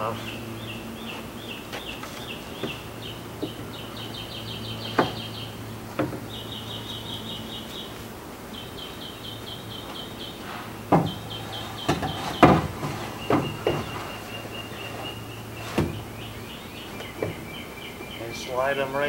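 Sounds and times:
bird chirping: 0:00.0 - 0:19.0
steady low hum: 0:00.0 - 0:19.0
wooden knocks: 0:03.4 - 0:03.8, 0:04.9 - 0:05.3, 0:05.9 - 0:06.3, 0:10.9 - 0:14.2.

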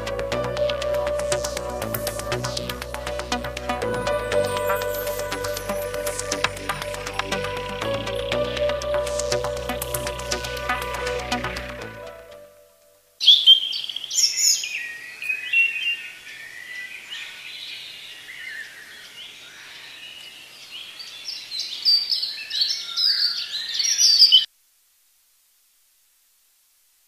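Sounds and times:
music: 0:00.0 - 0:13.0
songbirds chirping and singing: 0:13.2 - 0:24.5.

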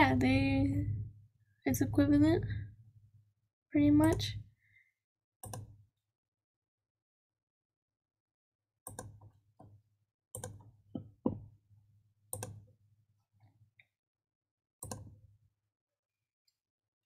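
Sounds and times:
computer mouse clicks: 0:04.0 - 0:04.3, 0:05.4 - 0:05.8, 0:08.9 - 0:09.2, 0:10.4 - 0:10.7, 0:12.4 - 0:12.6, 0:14.8 - 0:15.2.

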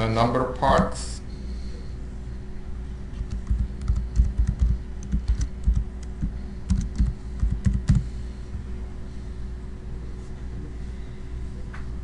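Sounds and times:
computer keyboard typing: 0:03.2 - 0:08.0.

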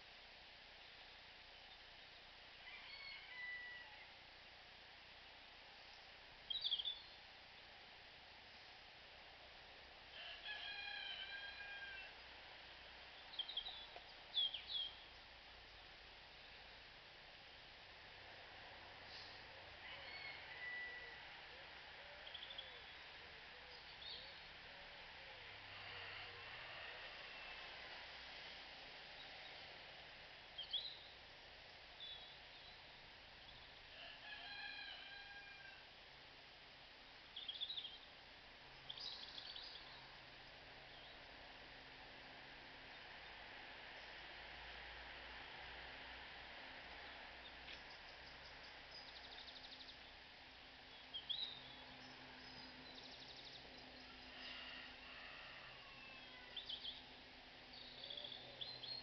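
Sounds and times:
faint background hiss: 0:00.0 - 0:59.0
small birds chirping: 0:05.3 - 0:07.3, 0:13.1 - 0:16.7, 0:22.2 - 0:24.6, 0:30.4 - 0:33.8, 0:37.2 - 0:41.3, 0:46.9 - 0:54.6, 0:56.2 - 0:59.0.

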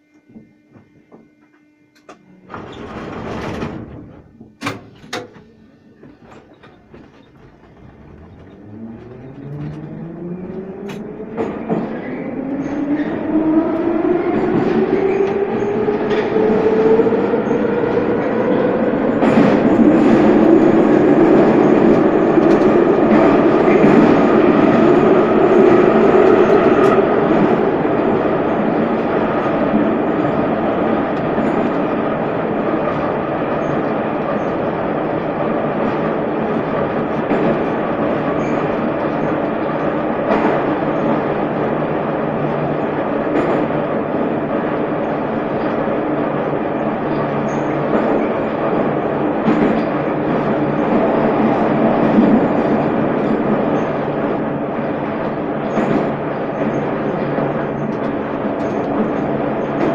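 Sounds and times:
traction motor whine: 0:00.0 - 0:14.6
train running on rails: 0:00.0 - 0:59.9.

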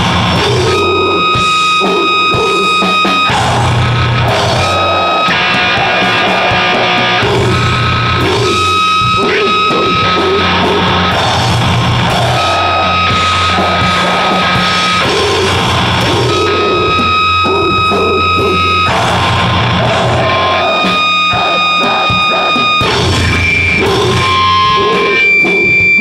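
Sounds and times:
distorted electric guitar: 0:00.0 - 0:26.0
drum kit: 0:00.0 - 0:26.0
high held tones: 0:00.0 - 0:26.0.

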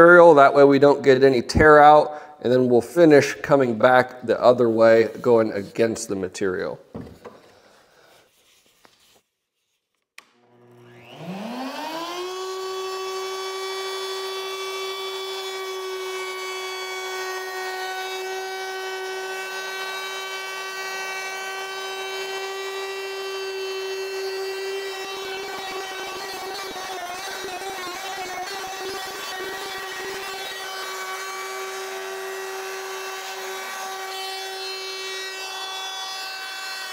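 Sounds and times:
router bit cutting wood: 0:10.2 - 0:36.9
router motor whining: 0:10.2 - 0:36.9.

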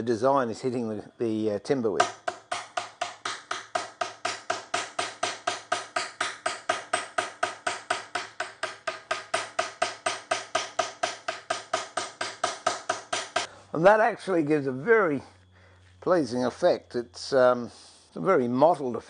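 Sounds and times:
hammer tapping punch into wood: 0:02.0 - 0:13.5.

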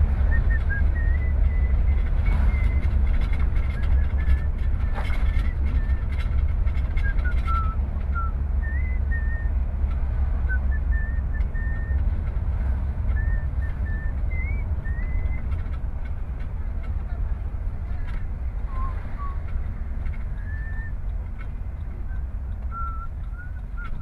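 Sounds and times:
car driving rumble: 0:00.0 - 0:24.0
person whistling: 0:00.3 - 0:02.8, 0:07.0 - 0:09.5, 0:10.5 - 0:12.0, 0:13.1 - 0:15.4, 0:18.7 - 0:19.4, 0:20.4 - 0:21.0, 0:22.1 - 0:24.0.

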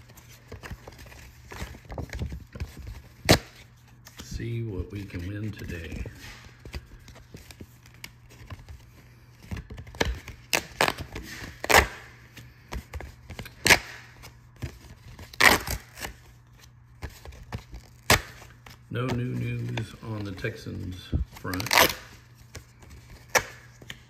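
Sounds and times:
paper rustling: 0:00.0 - 0:24.0
paper tearing: 0:15.2 - 0:16.2, 0:21.4 - 0:22.3.

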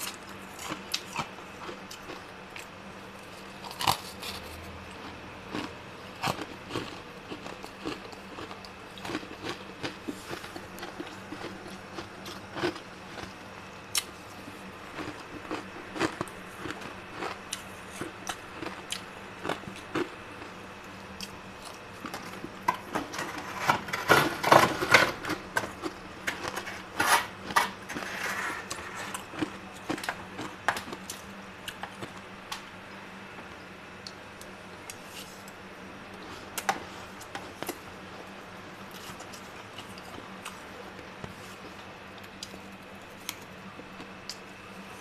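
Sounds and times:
steady low hum: 0:00.0 - 0:45.0
spoon scraping freezer frost: 0:22.1 - 0:29.4.

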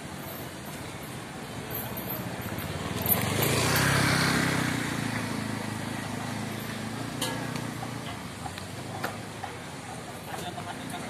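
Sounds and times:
motor scooter passing by: 0:02.2 - 0:08.4.

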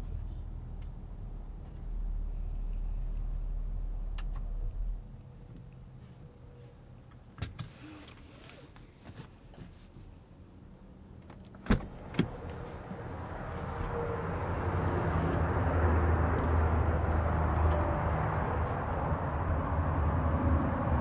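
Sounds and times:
outside noise with low hum: 0:00.0 - 0:21.0
car door unlatching clicks: 0:11.4 - 0:12.4.

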